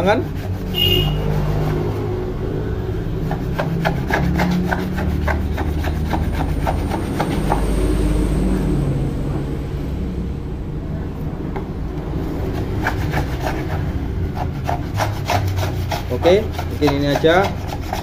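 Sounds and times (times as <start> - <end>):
steady low rumble: 6.5 - 12.8.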